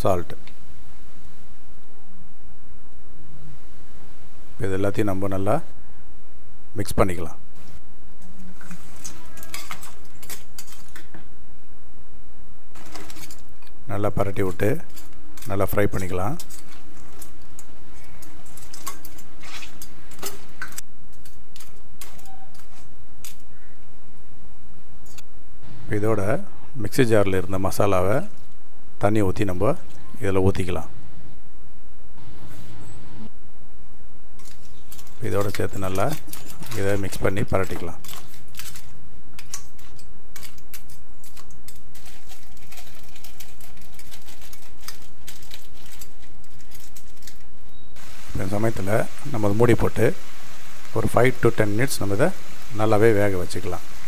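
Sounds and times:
steady low hum: 30.8s - 42.7s
low hum: 30.9s - 35.2s.

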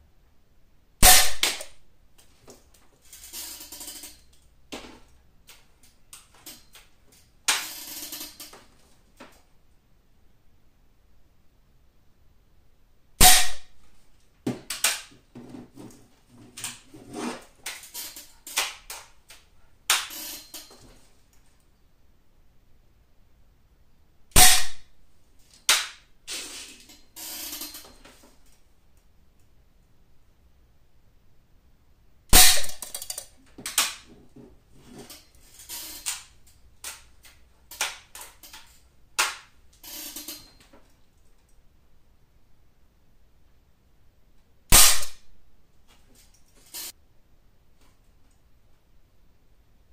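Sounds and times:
air rifle sharp crack: 1.0s - 1.8s, 13.2s - 13.7s, 24.3s - 24.9s, 32.3s - 33.1s, 44.7s - 45.2s.

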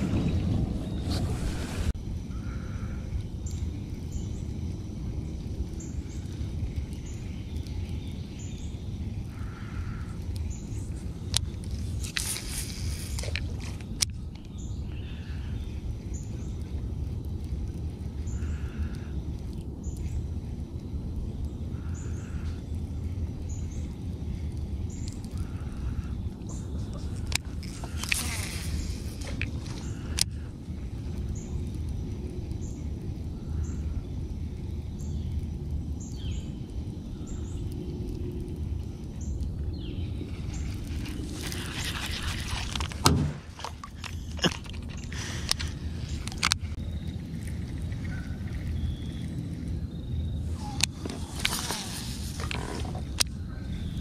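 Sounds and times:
steady low rumble: 0.0s - 54.0s
bird chirping: 43.8s - 52.0s.

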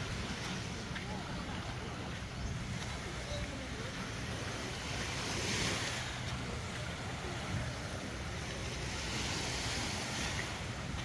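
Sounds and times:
small waves washing onto beach: 0.0s - 11.0s.

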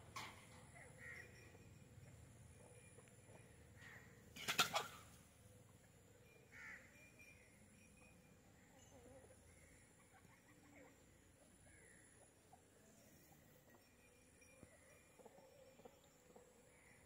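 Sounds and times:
crow cawing: 6.5s - 6.9s.

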